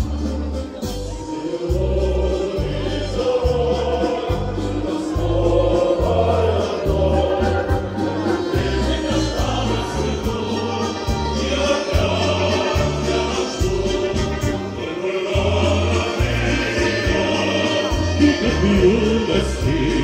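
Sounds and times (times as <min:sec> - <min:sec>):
choir singing: 0:01.2 - 0:20.0.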